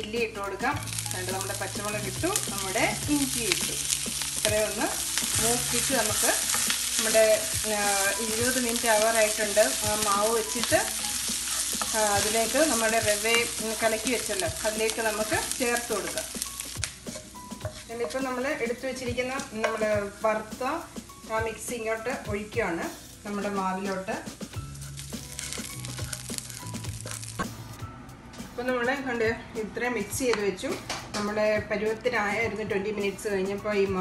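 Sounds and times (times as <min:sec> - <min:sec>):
seeds sizzling in a pan: 0:00.5 - 0:27.4
wooden spatula stirring: 0:00.8 - 0:18.6.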